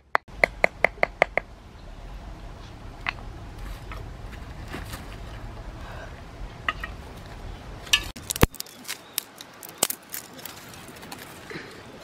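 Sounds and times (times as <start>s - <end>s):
stones and twigs clicking on gravel: 7.9s - 11.5s.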